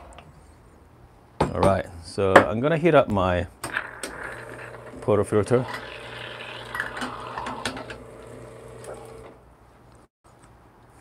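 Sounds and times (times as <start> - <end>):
espresso machine pump running: 4.0 - 9.4.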